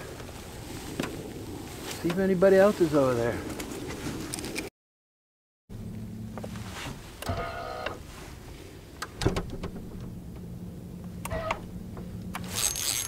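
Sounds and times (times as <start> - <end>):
spinning reel whirring: 12.4 - 13.0.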